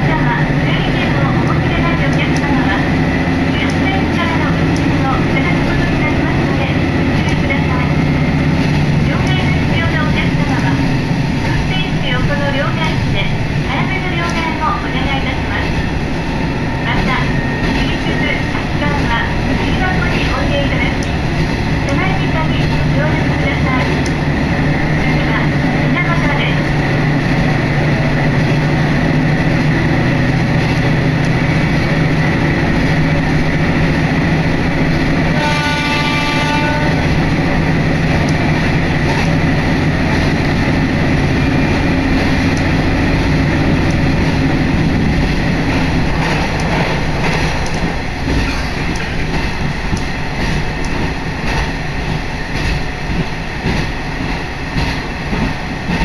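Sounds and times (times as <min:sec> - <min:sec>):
diesel railcar engine drone: 0:00.0 - 0:56.0
train wheels rumbling on rails: 0:00.0 - 0:56.0
train horn blast: 0:35.3 - 0:37.2.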